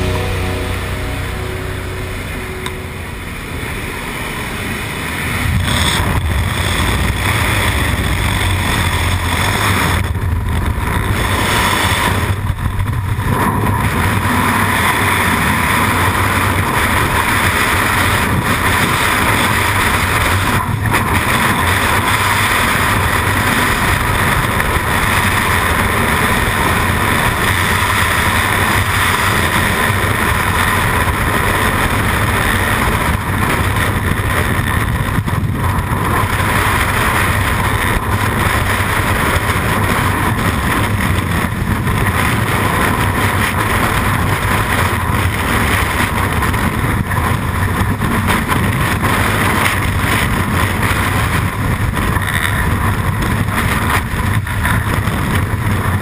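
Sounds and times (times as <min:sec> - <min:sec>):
freefall wind rushing: 0:00.0 - 0:56.0.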